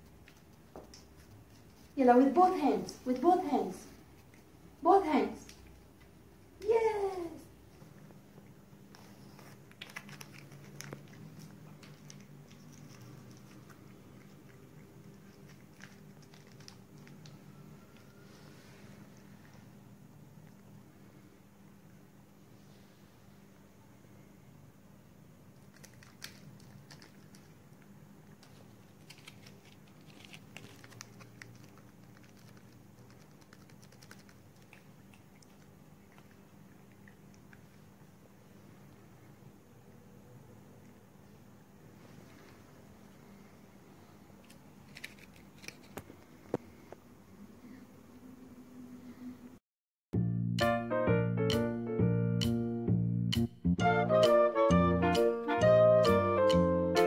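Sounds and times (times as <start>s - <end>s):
cat chewing: 7.8s - 21.2s, 25.5s - 39.1s.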